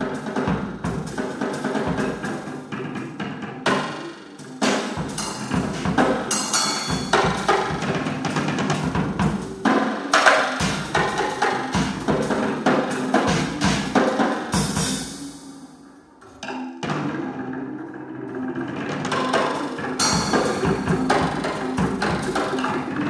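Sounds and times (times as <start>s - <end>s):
drum kit strikes: 3.7s - 15.3s, 18.9s - 23.0s.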